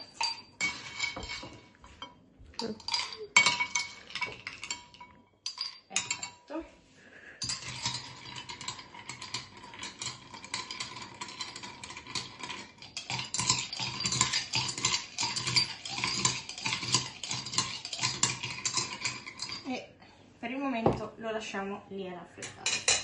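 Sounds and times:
ice and spoon clinking in glass: 0:00.0 - 0:02.0, 0:02.6 - 0:06.4, 0:07.4 - 0:19.7.

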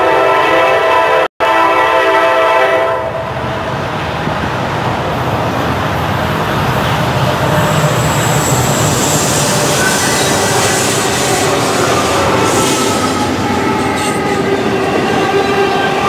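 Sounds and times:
locomotive horn chord: 0:00.0 - 0:03.4
train engine rumble: 0:02.4 - 0:16.0
faint high squeal: 0:07.4 - 0:14.4.

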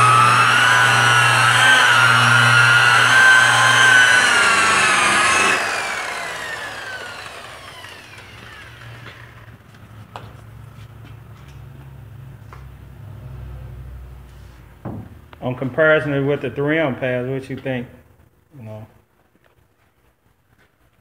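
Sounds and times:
angle polisher whining: 0:00.0 - 0:10.3.

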